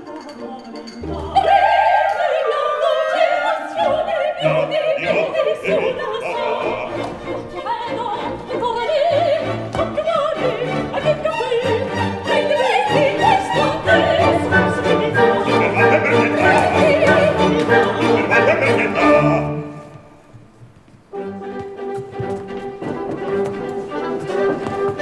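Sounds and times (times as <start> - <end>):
orchestra playing: 0.0 - 20.3, 21.1 - 25.0
woman singing opera with vibrato: 0.1 - 20.1.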